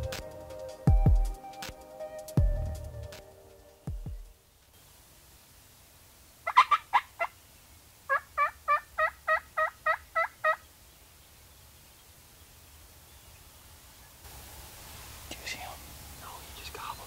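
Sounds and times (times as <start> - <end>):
turkey yelping: 6.4 - 7.4, 8.1 - 10.6.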